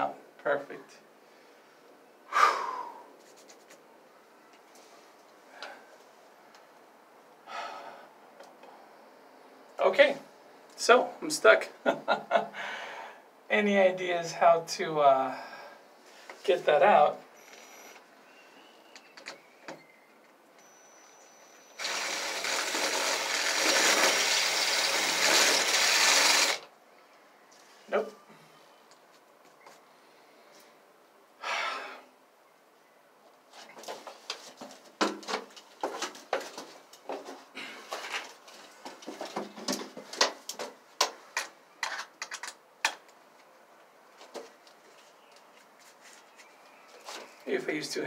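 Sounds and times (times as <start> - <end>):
drill bit clicking on screw: 21.8 - 26.6
cordless drill running: 21.8 - 26.7.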